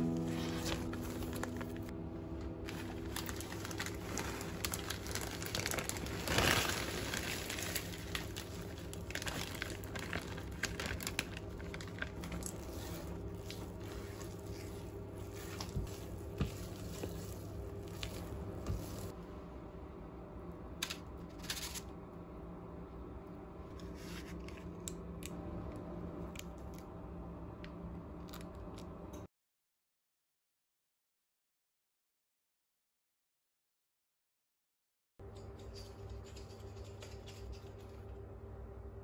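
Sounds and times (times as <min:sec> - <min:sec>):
plastic bag crinkling: 0:02.6 - 0:19.1
spatula stirring thick batter: 0:12.2 - 0:19.1.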